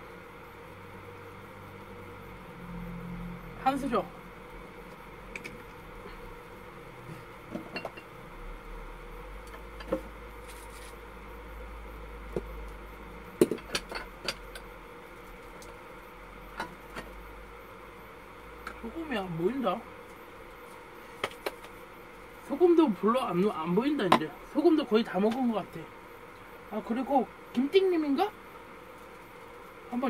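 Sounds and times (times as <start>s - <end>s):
low steady hum: 0.0s - 30.0s.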